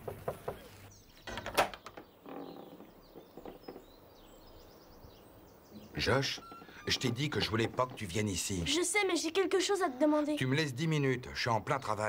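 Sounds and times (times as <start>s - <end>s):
wooden barn door clattering: 0.0s - 4.0s, 5.8s - 8.7s.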